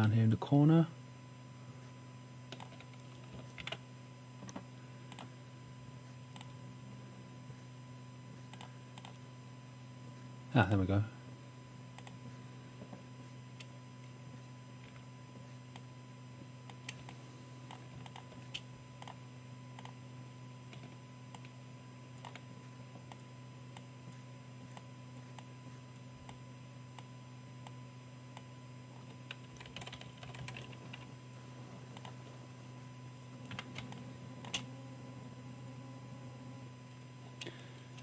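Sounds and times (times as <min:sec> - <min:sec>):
steady low hum: 0:00.0 - 0:38.0
keyboard keys tapping: 0:02.5 - 0:03.8, 0:29.0 - 0:31.1.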